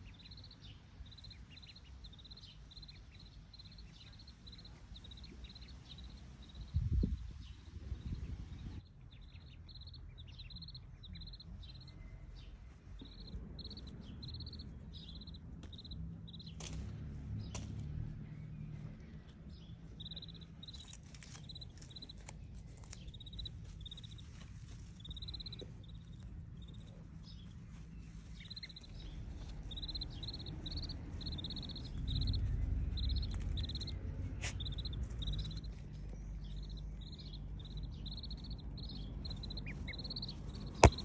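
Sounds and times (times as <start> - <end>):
ducklings peeping: 0.0 - 16.8, 19.5 - 41.0
low rumble: 9.7 - 41.0.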